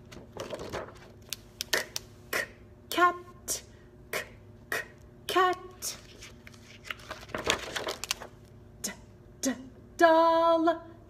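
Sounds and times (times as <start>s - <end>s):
page of paper book turning: 6.0s - 8.3s.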